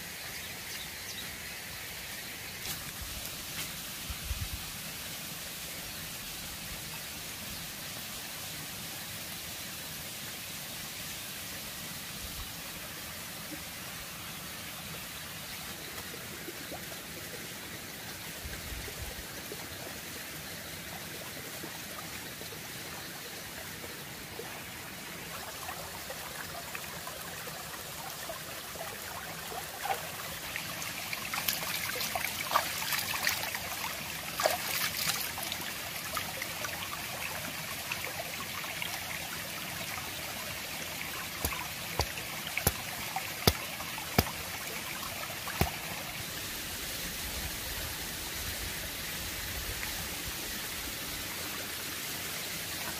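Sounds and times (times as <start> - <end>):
stream trickling over stones: 0.0 - 52.9
water splashing: 40.8 - 46.5.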